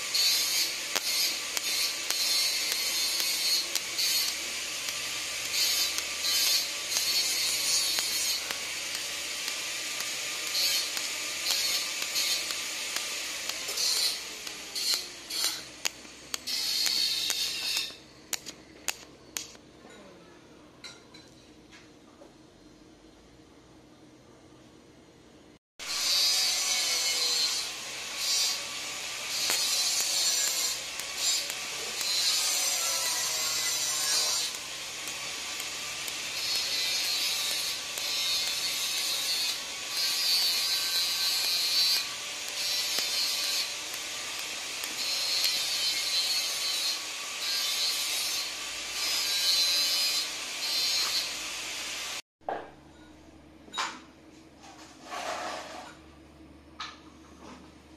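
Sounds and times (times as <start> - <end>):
welding arc hissing: 0.0 - 19.6, 25.8 - 52.2.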